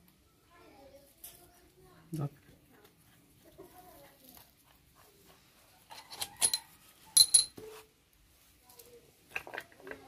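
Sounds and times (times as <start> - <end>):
metal parts clinking: 6.0 - 6.6, 7.2 - 7.6.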